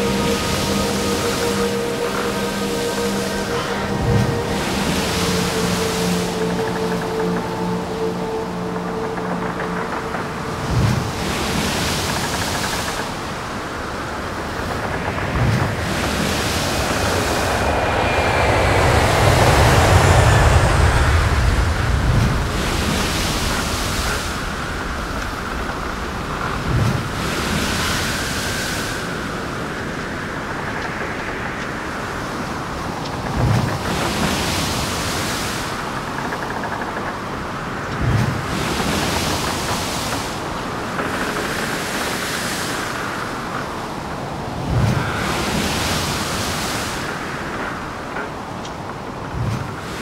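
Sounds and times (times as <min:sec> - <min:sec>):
deep rumble: 0:00.0 - 0:27.3
faint gliding tone: 0:00.0 - 0:36.6
surf-like washing noise: 0:00.0 - 0:50.0.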